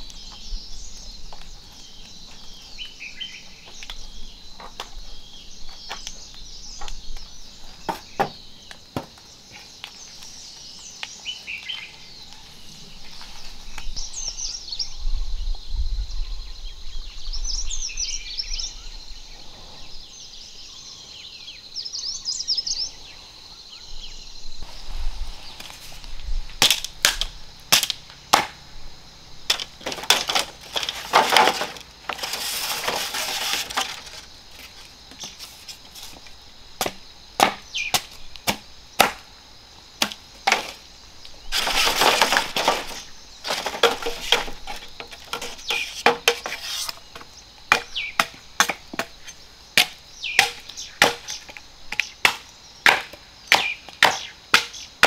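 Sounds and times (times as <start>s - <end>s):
sharp chopping blows on wood: 26.6s - 28.6s, 36.8s - 39.3s, 49.8s - 54.8s.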